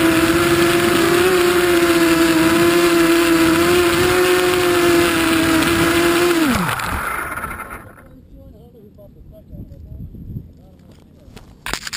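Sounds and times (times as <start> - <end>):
drone propellers whining: 0.0 - 8.1.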